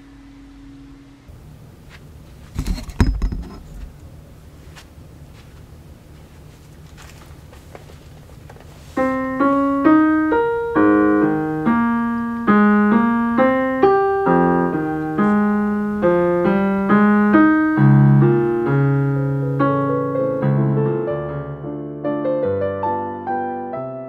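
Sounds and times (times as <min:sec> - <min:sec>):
solo piano melody: 0:00.0 - 0:01.5, 0:08.9 - 0:24.0.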